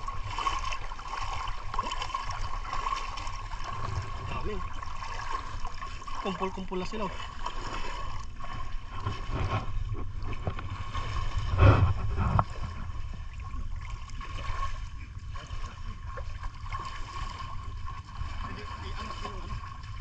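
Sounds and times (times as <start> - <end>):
water sloshing and splashing: 0.0 - 20.0.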